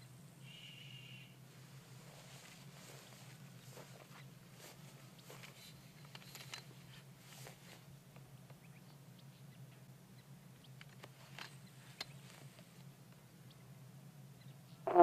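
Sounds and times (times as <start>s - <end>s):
low steady hum: 0.0s - 15.0s
faint clicks and rustles: 1.5s - 9.0s, 10.6s - 13.6s.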